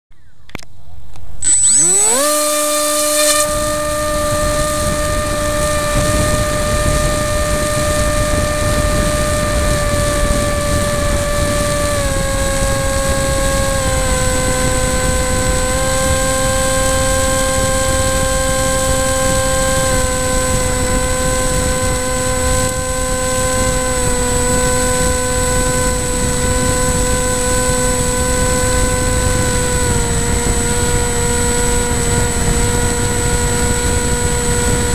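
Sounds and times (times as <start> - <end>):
electric motor whine: 1.4 - 34.9.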